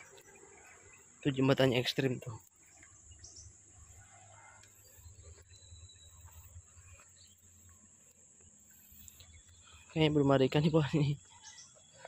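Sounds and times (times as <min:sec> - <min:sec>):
high-pitched insect drone: 0:04.7 - 0:12.0.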